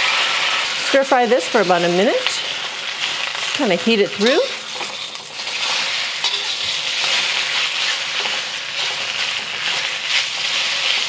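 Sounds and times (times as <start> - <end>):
noodles sizzling in a wok: 0.0 - 11.0.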